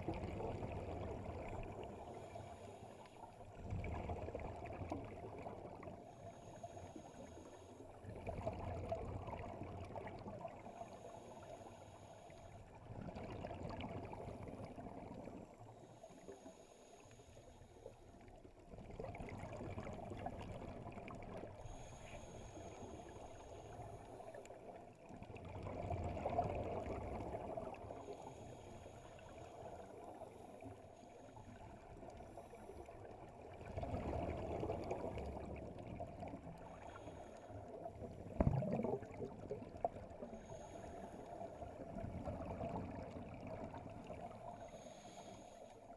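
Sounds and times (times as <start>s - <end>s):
regulator inhale hiss: 1.8s - 3.5s, 6.0s - 8.0s, 10.7s - 12.7s, 15.7s - 18.0s, 21.5s - 24.6s, 27.4s - 33.0s, 36.6s - 37.8s, 40.2s - 41.8s, 44.4s - 45.9s
exhaled bubbles rushing: 25.2s - 28.0s, 33.2s - 36.6s, 37.7s - 40.4s, 41.6s - 44.4s.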